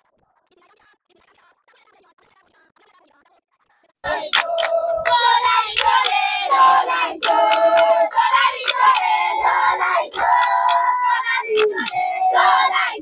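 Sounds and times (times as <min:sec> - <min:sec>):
crowd singing and chanting: 0:04.0 - 0:13.0
hand claps: 0:04.1 - 0:12.6.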